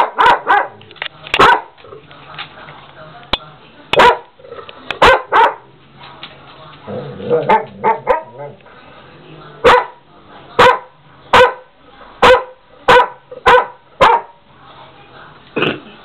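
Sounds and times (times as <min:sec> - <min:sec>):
large dog barking: 0:00.0 - 0:00.8, 0:01.4 - 0:01.8, 0:04.0 - 0:04.4, 0:05.0 - 0:05.7, 0:07.1 - 0:08.6, 0:09.6 - 0:10.0, 0:10.6 - 0:14.4.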